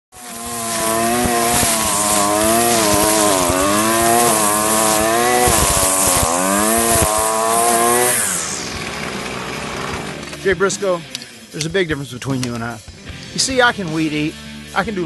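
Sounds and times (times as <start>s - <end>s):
trimmer line cutting grass: 0.1s - 11.0s
string trimmer engine: 0.1s - 11.3s.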